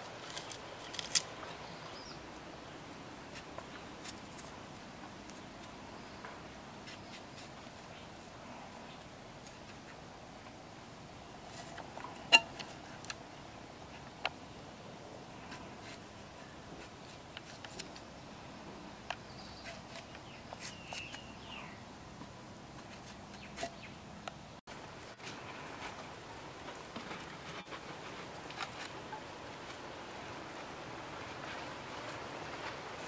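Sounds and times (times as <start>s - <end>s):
pieces dropping onto leaves: 0.1s - 1.5s.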